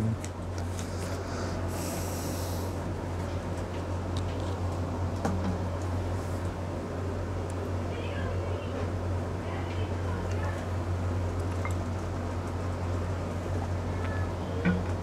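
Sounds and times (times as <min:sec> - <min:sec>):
steady low hum: 0:00.0 - 0:15.0
short hiss: 0:01.3 - 0:02.8.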